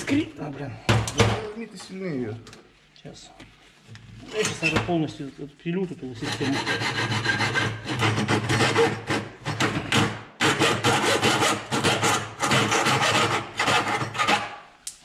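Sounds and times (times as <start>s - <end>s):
hacksaw rasping strokes: 6.2s - 14.6s.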